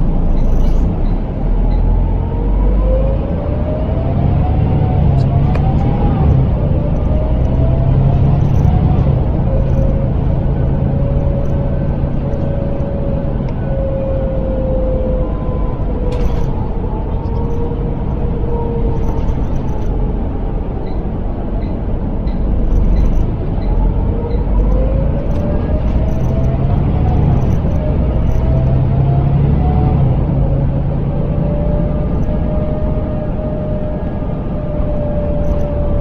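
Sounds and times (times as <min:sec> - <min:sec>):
bus diesel engine rumble: 0:00.0 - 0:36.0
driveline whine: 0:00.0 - 0:36.0.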